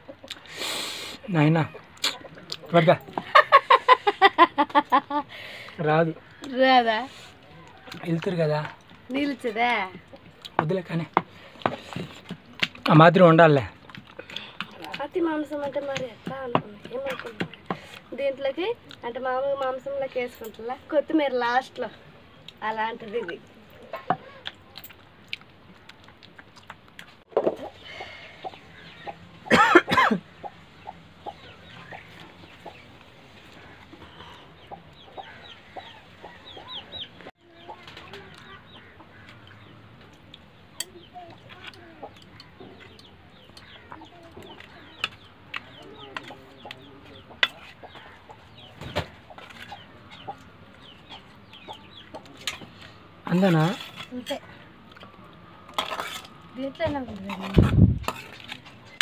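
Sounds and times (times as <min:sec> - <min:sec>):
chickens clucking: 0:00.0 - 0:06.5, 0:22.1 - 0:59.0
chicks peeping: 0:27.4 - 0:29.5, 0:30.3 - 0:53.8.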